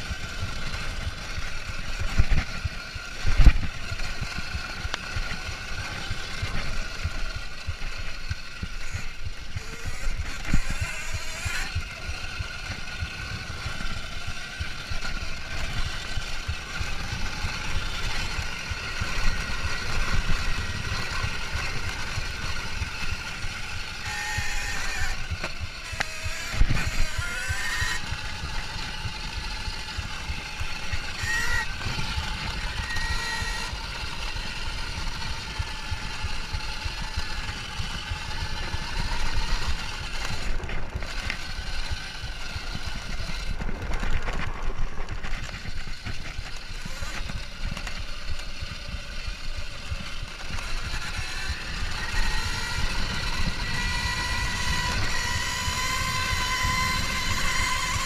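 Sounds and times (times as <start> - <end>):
electric motor whine: 0.0 - 58.0
tyres and suspension rattling: 0.0 - 58.0.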